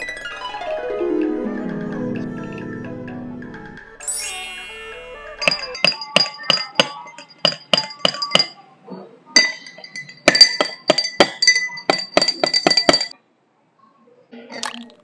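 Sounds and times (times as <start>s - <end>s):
spoon clinking in glass: 9.4s - 13.2s.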